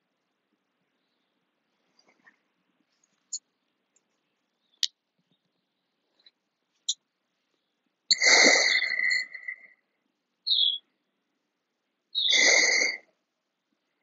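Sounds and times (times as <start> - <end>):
bird calling: 8.1 - 9.8, 10.5 - 10.9, 12.2 - 13.0
short high bird chirp: 10.5 - 10.8, 12.2 - 12.8.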